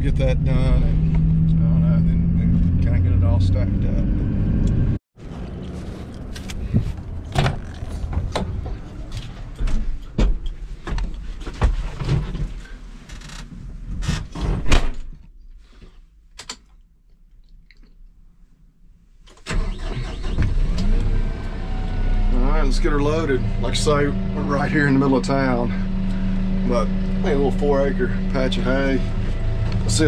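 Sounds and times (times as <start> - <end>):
diesel engine starting and running: 0.0 - 10.9, 19.3 - 30.0.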